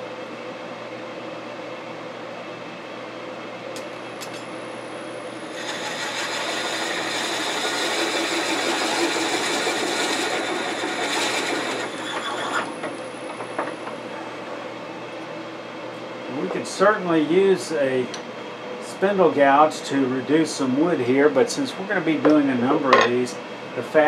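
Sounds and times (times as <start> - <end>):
wood lathe humming: 5.4 - 14.0
drill bit cutting wood: 5.5 - 12.8.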